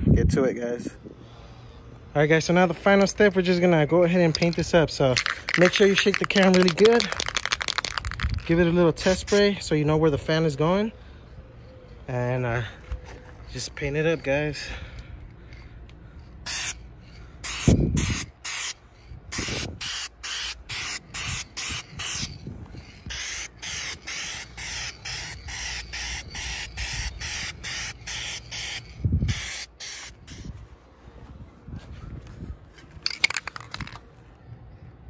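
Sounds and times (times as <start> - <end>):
aerosol spray can hissing: 5.2 - 9.4, 16.5 - 16.8, 17.4 - 18.8, 19.4 - 22.3, 23.1 - 30.5.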